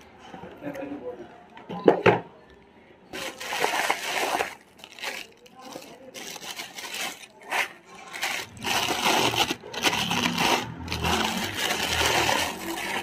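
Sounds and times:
plastic packaging crinkling: 3.1s - 13.0s.

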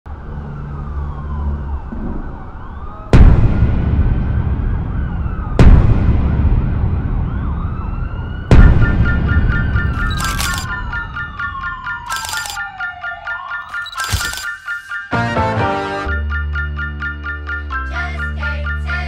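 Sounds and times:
distant sirens wailing: 0.1s - 15.2s
deep cinematic impact hits: 3.1s - 7.3s.

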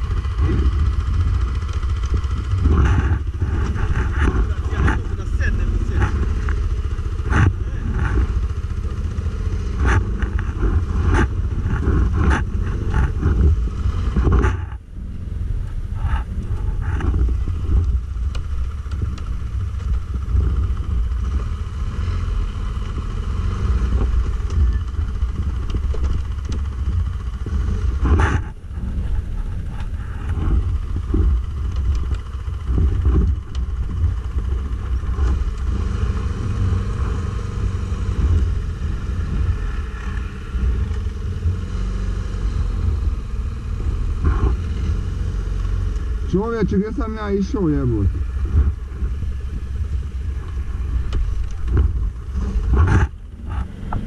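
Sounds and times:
knocks and rattles: 0.0s - 14.9s, 22.8s - 37.5s
atv engine running under load: 0.0s - 54.0s.

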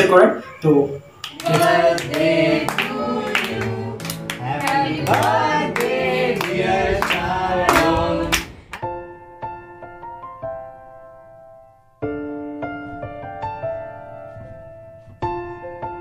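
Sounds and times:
clapping in time: 1.2s - 8.8s
young people singing in chorus: 1.3s - 8.8s
soft piano notes: 1.4s - 16.0s.

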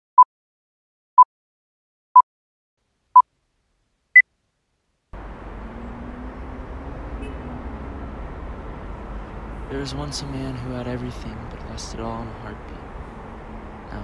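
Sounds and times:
low city traffic ambience: 2.9s - 14.0s.

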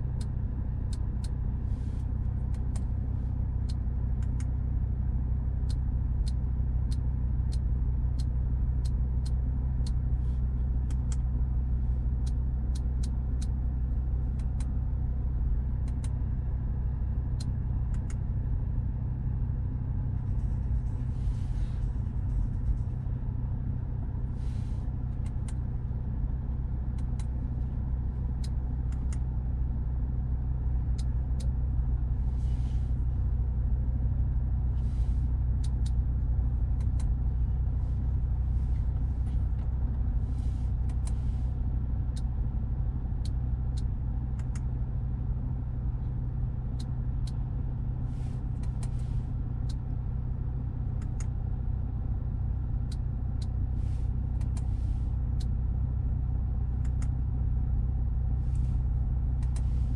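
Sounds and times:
car engine idling: 0.0s - 59.9s
sharp control clicks: 2.4s - 3.0s, 3.6s - 4.6s, 10.8s - 11.4s, 12.2s - 13.6s, 14.3s - 14.8s, 15.8s - 16.3s, 17.3s - 18.3s, 26.8s - 27.4s, 28.2s - 29.4s, 35.5s - 36.1s, 36.7s - 37.3s, 43.1s - 44.8s, 48.4s - 50.0s, 50.8s - 51.5s, 52.8s - 53.7s, 54.3s - 55.6s, 56.7s - 57.2s, 59.3s - 59.8s.

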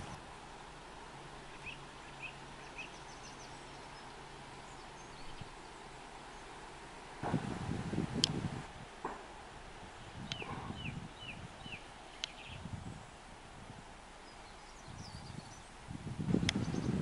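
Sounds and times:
faint steady hiss: 0.0s - 17.0s
low rumbling: 0.0s - 17.0s
small bird calling: 1.5s - 6.6s, 10.1s - 13.2s, 14.2s - 15.8s.

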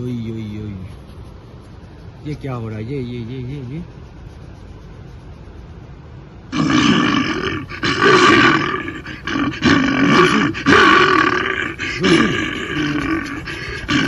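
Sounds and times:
bear growling: 6.5s - 14.0s.

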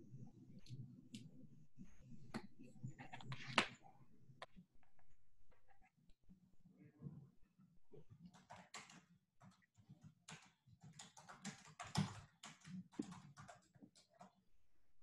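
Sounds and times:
faint keyboard typing: 0.2s - 5.8s, 7.9s - 14.5s.

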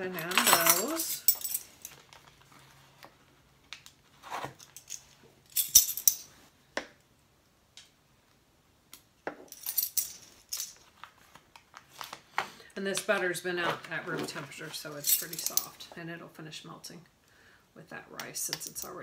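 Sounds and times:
metal measuring spoons clinking: 0.0s - 1.7s.

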